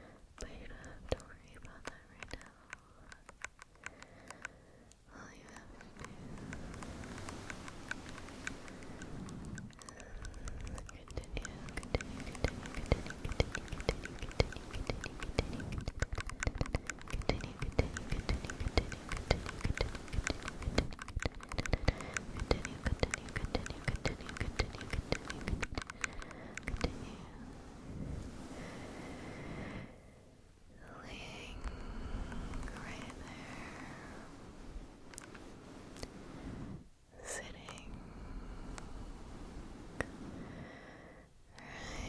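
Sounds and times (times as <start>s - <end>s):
brush scratching on microphone: 5.6s - 27.4s, 32.2s - 33.5s.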